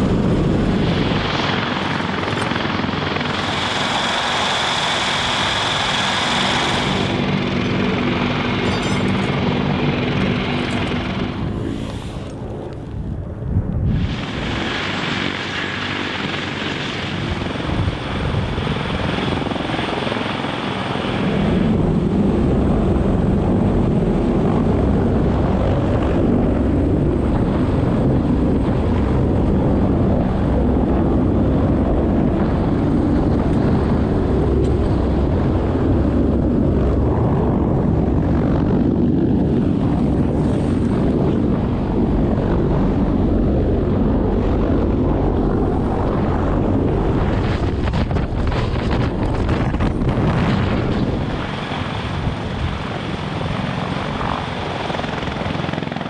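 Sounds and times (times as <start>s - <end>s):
helicopter rotor rumble: 0.0s - 56.0s.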